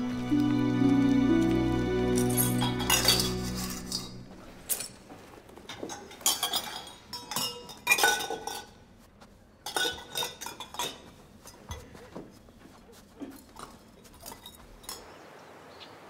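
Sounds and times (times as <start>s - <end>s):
metal cups clinking together: 2.2s - 4.9s, 5.7s - 8.8s, 9.6s - 11.1s.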